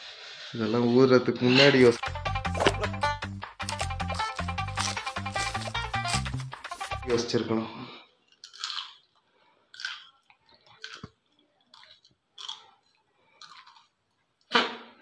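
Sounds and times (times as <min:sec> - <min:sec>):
person chewing crunchy chilli: 0:02.0 - 0:07.1, 0:08.2 - 0:14.2.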